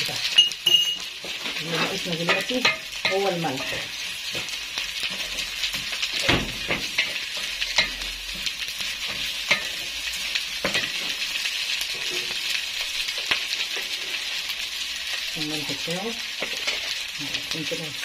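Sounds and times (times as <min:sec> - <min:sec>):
rice sizzling in a pot: 0:00.0 - 0:18.0
wooden spoon scraping a pot: 0:01.1 - 0:12.6, 0:13.2 - 0:14.4, 0:16.4 - 0:17.0.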